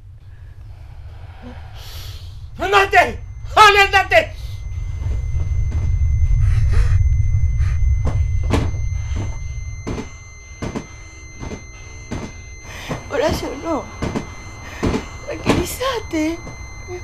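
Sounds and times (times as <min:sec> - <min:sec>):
deep low rumble: 0:00.0 - 0:17.0
sharp knocks and thuds: 0:08.0 - 0:15.8.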